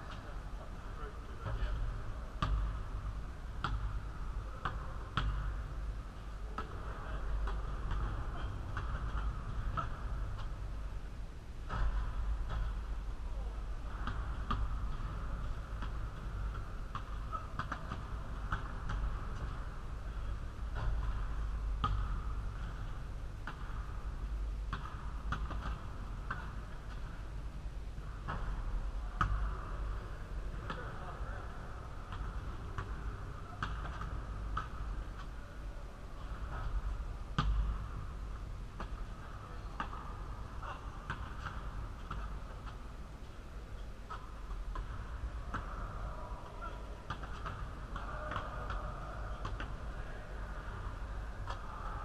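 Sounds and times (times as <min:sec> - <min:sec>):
steady low hum: 0:00.0 - 0:52.0
basketball bouncing on court: 0:01.4 - 0:10.7, 0:11.7 - 0:27.2, 0:28.0 - 0:30.0, 0:32.0 - 0:35.3, 0:36.2 - 0:38.0, 0:38.8 - 0:42.8, 0:44.1 - 0:45.8, 0:46.6 - 0:49.8
basketball hitting the rim: 0:02.4 - 0:02.8, 0:03.6 - 0:05.6, 0:07.4 - 0:10.5, 0:11.7 - 0:12.9, 0:13.9 - 0:19.7, 0:20.7 - 0:24.0, 0:24.7 - 0:27.2, 0:33.6 - 0:34.8, 0:37.4 - 0:38.0
basketball bouncing on hard floor: 0:21.8 - 0:22.2.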